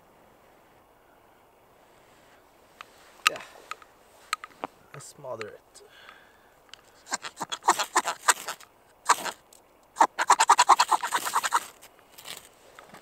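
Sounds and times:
knife scraping ferrocerium rod: 10.1 - 11.8.

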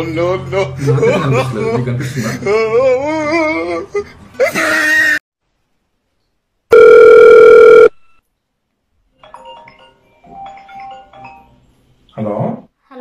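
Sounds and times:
electronic phone tone: 6.7 - 8.0
short electronic tones: 6.7 - 8.0.

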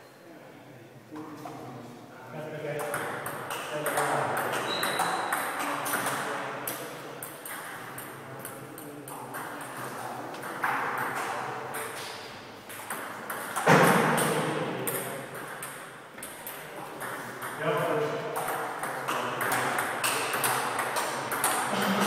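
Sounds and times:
table tennis balls clicking: 2.8 - 12.0, 12.7 - 17.6, 18.4 - 21.7.

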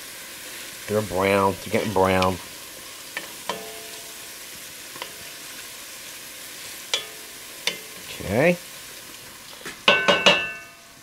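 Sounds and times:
garlic sizzling in hot oil: 0.0 - 11.0
wooden spoon knocking on pot: 9.9 - 10.7.

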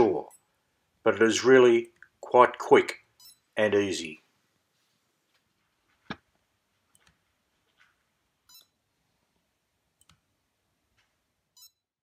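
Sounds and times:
short electronic beep: 11.6 - 11.8.

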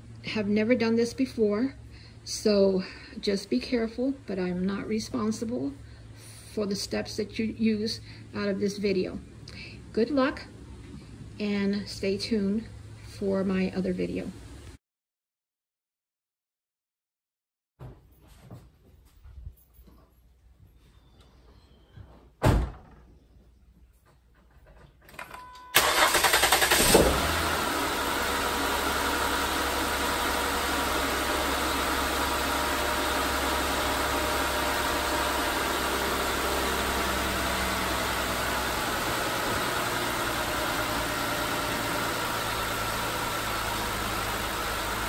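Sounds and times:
car engine cranking and idling: 25.2 - 45.0.

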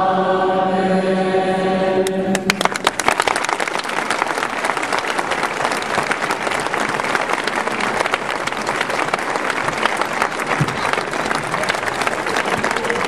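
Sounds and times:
crowd applauding: 2.3 - 13.0
sung amen: 10.6 - 13.0.

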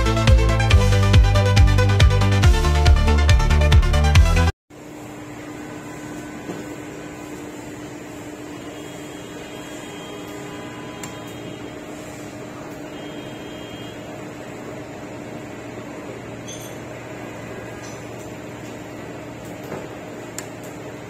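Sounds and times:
machine humming: 0.0 - 21.0.

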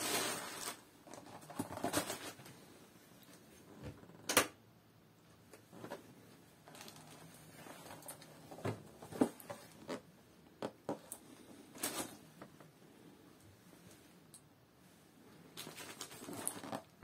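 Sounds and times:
plastic bag rustling: 0.0 - 2.7, 6.6 - 10.0, 11.3 - 12.4, 15.5 - 17.0.

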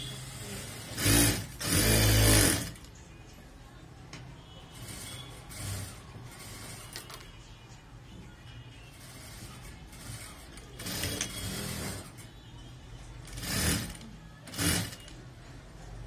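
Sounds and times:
sewing machine stitching: 0.0 - 2.9, 4.8 - 7.3, 8.9 - 12.3, 13.2 - 15.2.

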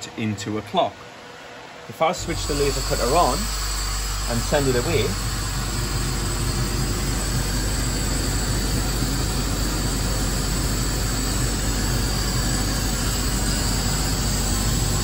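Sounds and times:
laser cutter running: 1.9 - 15.0
low hum: 2.2 - 15.0.

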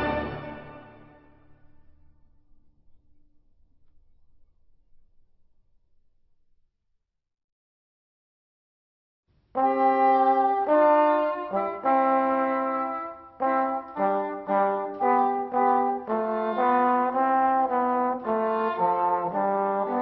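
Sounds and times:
brass instruments playing in harmony: 0.0 - 1.6, 9.6 - 20.0.

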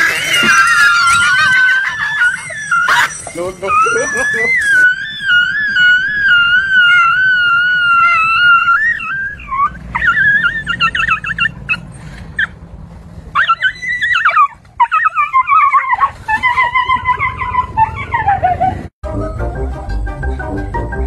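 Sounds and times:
dog whining and yelping: 0.0 - 12.6, 13.3 - 18.9.

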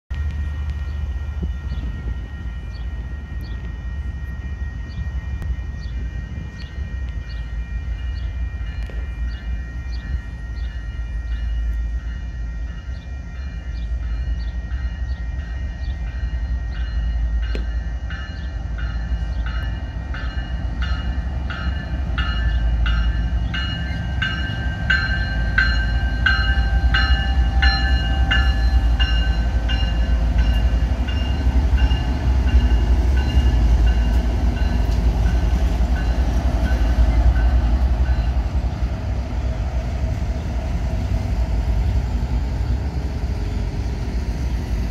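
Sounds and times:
freight train rumbling on rails: 0.1 - 44.9
warning bell ringing: 7.5 - 38.5.

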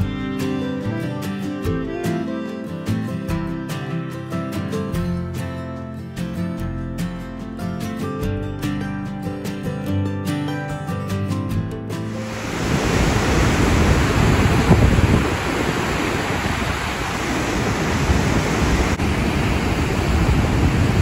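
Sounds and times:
strummed guitar music: 0.0 - 15.2
waterfall roaring: 12.1 - 21.0.

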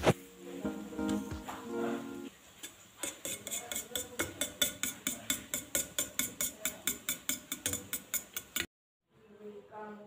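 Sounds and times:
utensil clinking against steel bowl: 2.6 - 8.7.

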